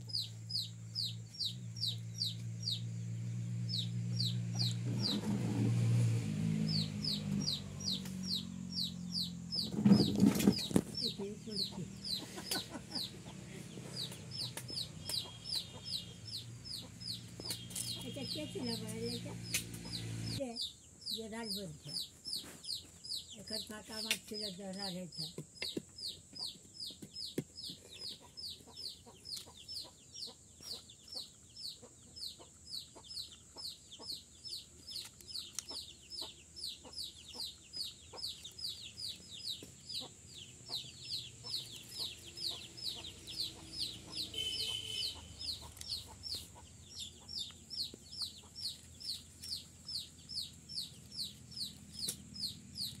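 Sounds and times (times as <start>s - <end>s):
parakeets squeaking: 35.7s - 53.0s.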